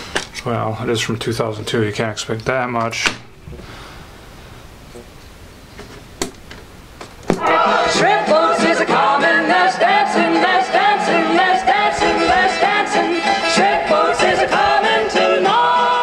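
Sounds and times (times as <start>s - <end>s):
pop song on boombox: 7.3s - 16.0s.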